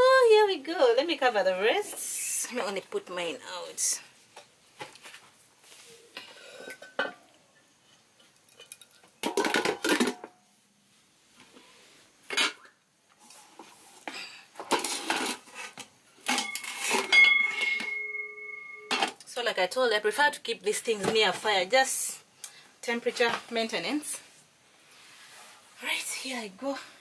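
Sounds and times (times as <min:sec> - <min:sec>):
metal pans and trays clattering: 0:09.2 - 0:10.4, 0:14.6 - 0:19.2
metal tray ringing: 0:16.4 - 0:19.0.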